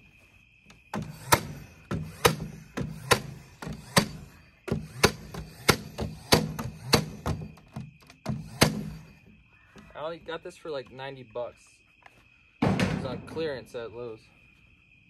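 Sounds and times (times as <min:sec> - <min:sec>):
nail gun shots into wood: 0:00.9 - 0:09.1.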